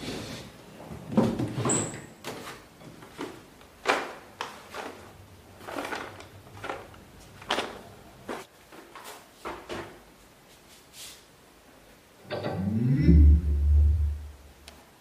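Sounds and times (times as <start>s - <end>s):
rummaging scrapes and knocks: 0.0s - 9.9s.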